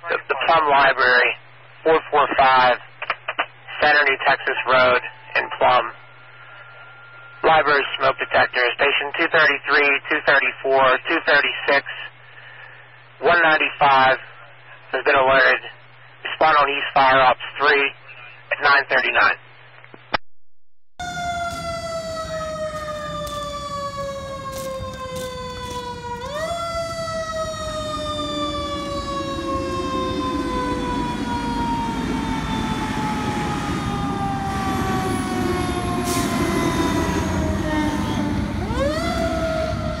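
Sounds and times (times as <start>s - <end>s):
fire engine siren wailing: 6.0s - 7.8s, 21.0s - 40.0s.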